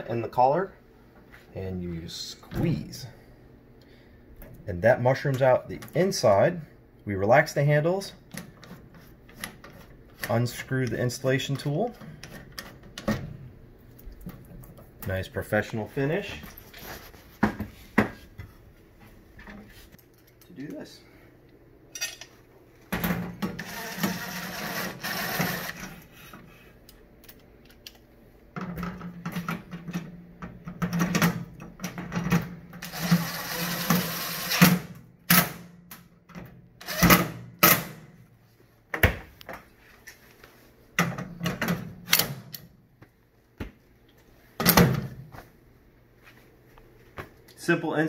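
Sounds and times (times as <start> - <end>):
cordless drill driving screws: 23.6 - 25.8, 32.8 - 34.6.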